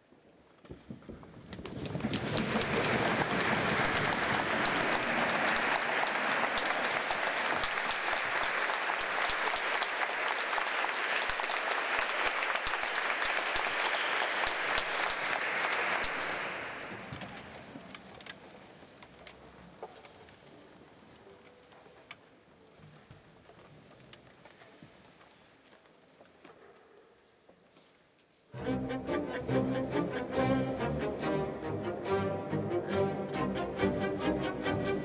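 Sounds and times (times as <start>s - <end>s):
audience applauding: 1.6s - 17.5s.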